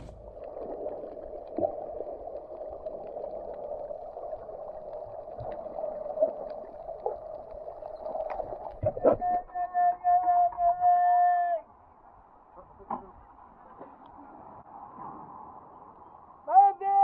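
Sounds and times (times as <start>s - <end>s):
faint clicks and crackles: 0.0s - 9.5s
muffled underwater rushing: 0.0s - 10.8s.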